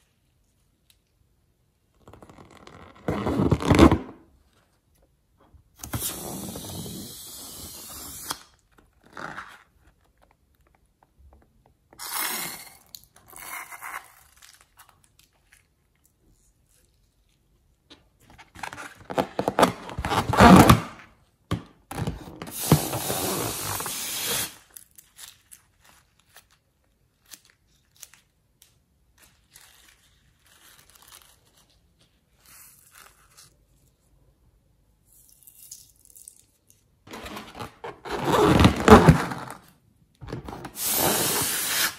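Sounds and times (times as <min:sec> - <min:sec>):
rubber balloon rustling: 0:02.0 - 0:04.4, 0:05.8 - 0:08.3, 0:18.4 - 0:21.0, 0:22.2 - 0:24.7, 0:37.1 - 0:41.9.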